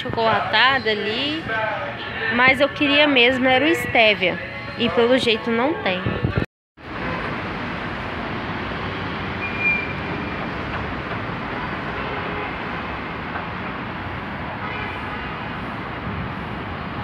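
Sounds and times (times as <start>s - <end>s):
busy street traffic: 0.0s - 17.0s
short high-pitched squeak: 9.4s - 10.3s.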